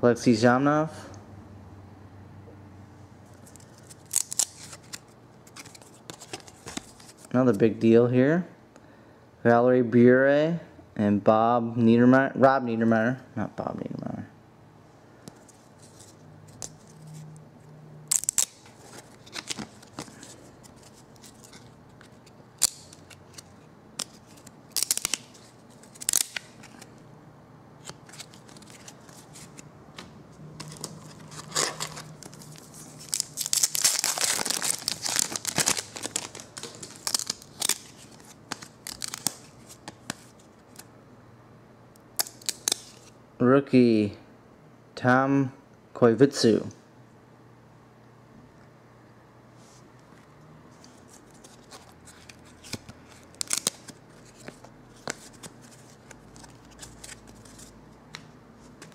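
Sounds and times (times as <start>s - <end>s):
wrapper tearing and crinkling: 3.4s - 7.3s, 18.1s - 21.8s, 24.0s - 26.9s, 30.6s - 40.8s, 42.2s - 43.1s, 51.3s - 57.8s
trading cards snapping and flicking: 24.0s - 25.3s.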